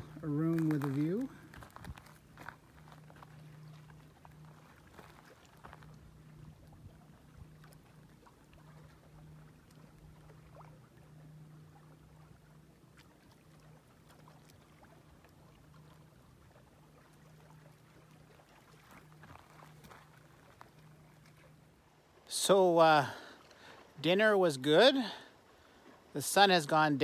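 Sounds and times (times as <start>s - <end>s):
distant motorboat hum: 0.0s - 27.0s.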